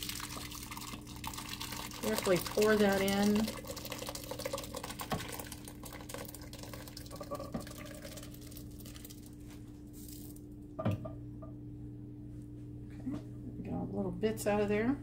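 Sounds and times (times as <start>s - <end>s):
thick soup pouring and splattering: 0.0s - 9.3s.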